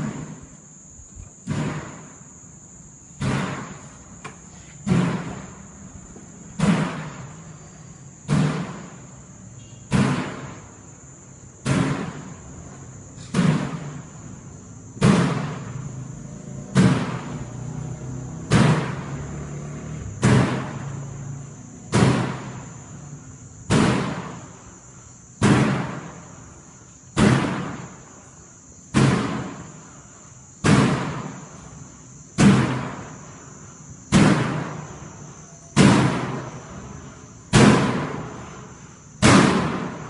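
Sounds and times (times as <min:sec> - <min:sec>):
door slamming with echo: 0:03.2 - 0:04.0, 0:04.8 - 0:05.6, 0:06.6 - 0:07.3, 0:08.3 - 0:09.0, 0:09.8 - 0:10.6, 0:21.9 - 0:22.6, 0:25.4 - 0:26.2, 0:27.2 - 0:27.9, 0:28.9 - 0:29.7, 0:30.6 - 0:31.4, 0:34.1 - 0:34.9, 0:35.8 - 0:36.5, 0:37.5 - 0:38.6, 0:39.2 - 0:40.0.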